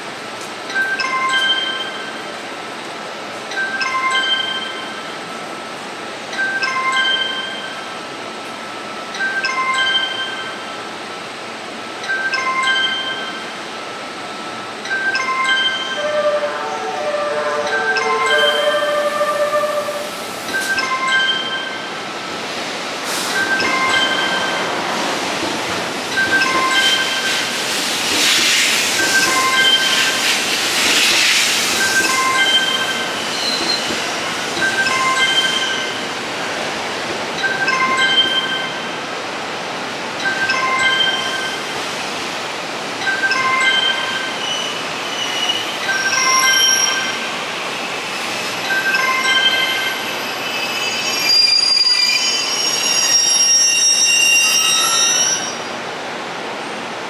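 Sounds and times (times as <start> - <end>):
high-pitched chime phrase: 14.9 - 21.9
train wheels rumbling on rails: 17.0 - 57.0
train wheels squealing: 28.3 - 35.9, 44.3 - 55.7.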